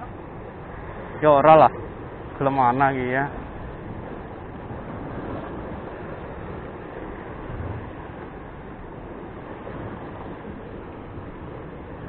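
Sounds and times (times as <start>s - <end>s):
surf washing against rocks: 0.0s - 12.0s
wind on microphone: 3.2s - 12.0s.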